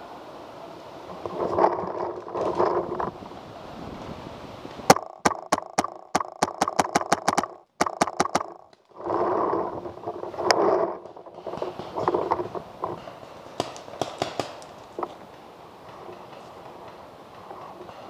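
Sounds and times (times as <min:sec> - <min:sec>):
paintball marker firing: 0:04.9 - 0:08.8, 0:13.6 - 0:14.7.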